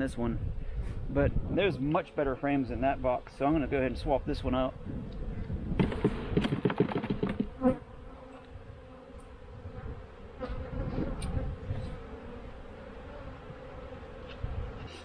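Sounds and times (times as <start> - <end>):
bees buzzing: 1.8 - 15.0
wooden hive frames knocking: 5.7 - 7.8.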